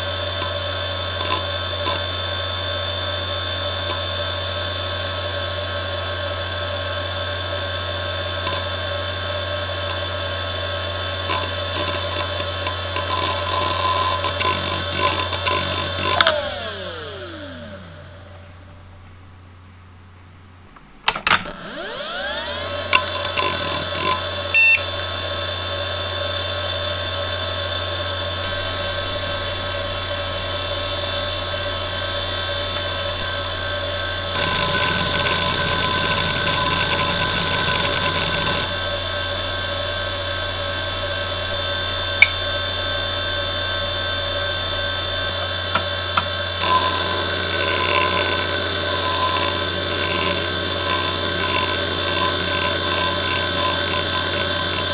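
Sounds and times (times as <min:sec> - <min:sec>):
hard drive whine: 0:00.0 - 0:54.9
hard drive heads seeking chatter: 0:34.3 - 0:39.0, 0:45.4 - 0:54.9.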